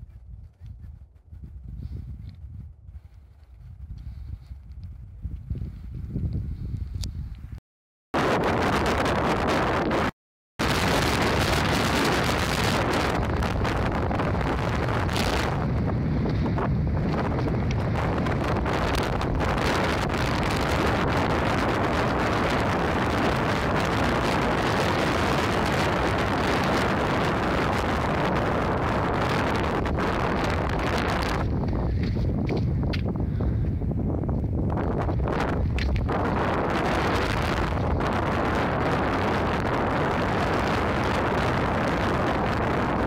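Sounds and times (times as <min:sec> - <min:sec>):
wind blowing across microphone: 0:00.0 - 0:07.6, 0:08.2 - 0:43.0.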